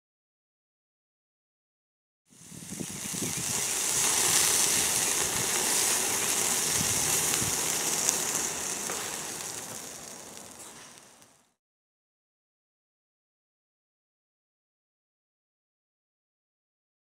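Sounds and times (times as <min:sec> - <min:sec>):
meat sizzling on a grill: 0:02.3 - 0:11.6.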